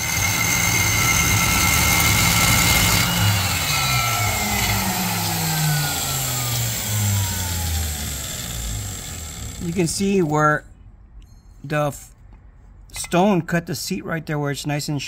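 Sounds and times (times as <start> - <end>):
valve seat grinder whine: 0.0 - 10.1.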